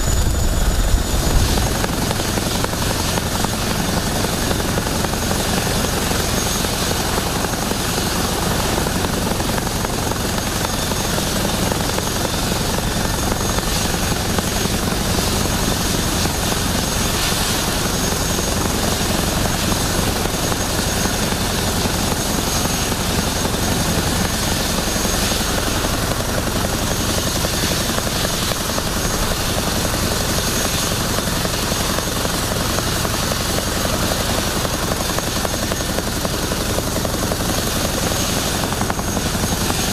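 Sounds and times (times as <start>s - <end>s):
low rotor throb: 0.0s - 5.2s
helicopter turbine whine: 0.0s - 39.9s.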